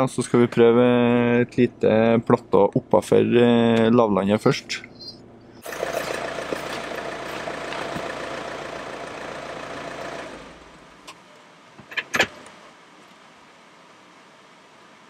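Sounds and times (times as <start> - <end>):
truck engine running: 5.6 - 10.9.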